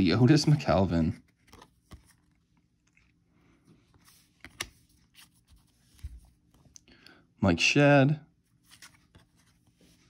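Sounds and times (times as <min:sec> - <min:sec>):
trading cards clicking and scraping: 0:03.9 - 0:06.1.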